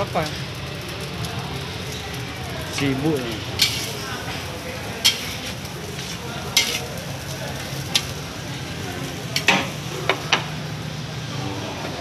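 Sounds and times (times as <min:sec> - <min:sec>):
food sizzling in a wok: 0:00.0 - 0:11.4
spatula clanking on a wok: 0:03.5 - 0:08.2, 0:09.3 - 0:10.6
metal spatula scraping a pan: 0:03.6 - 0:04.4, 0:05.0 - 0:07.0.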